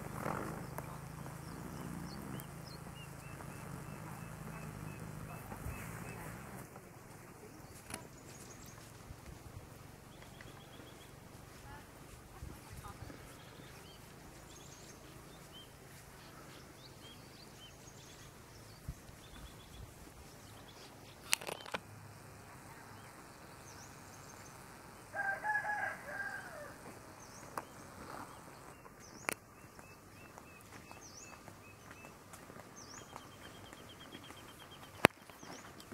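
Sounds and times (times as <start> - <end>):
small birds chirping: 0.0 - 35.9
sharp clicks: 21.2 - 21.9
rooster crowing: 25.1 - 26.8.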